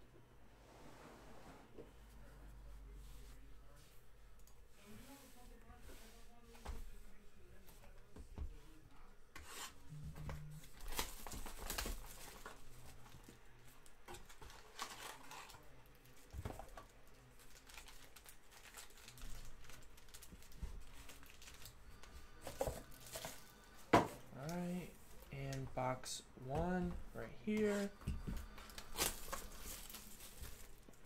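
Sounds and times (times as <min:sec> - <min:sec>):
foil packs crinkling: 0:16.6 - 0:23.5, 0:28.6 - 0:31.0.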